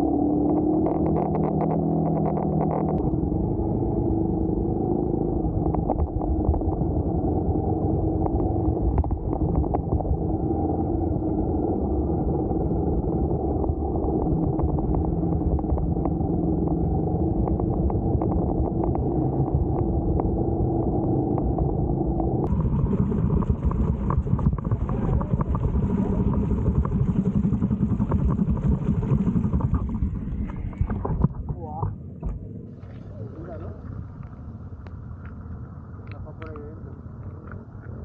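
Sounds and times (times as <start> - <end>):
motorcycle engine running: 0.0 - 32.4.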